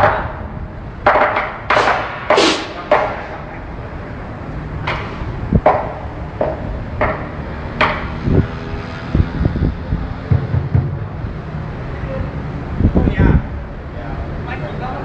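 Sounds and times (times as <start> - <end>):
drum struck with sticks: 1.7 - 3.2, 10.3 - 11.3.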